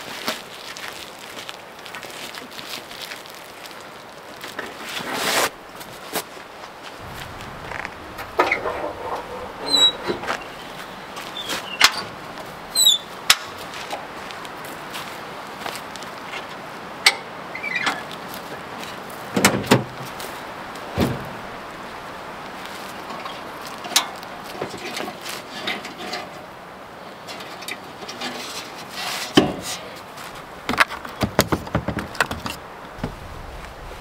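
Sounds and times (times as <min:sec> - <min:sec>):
hard cases knocking and clunking: 0:07.0 - 0:13.5, 0:30.6 - 0:33.2.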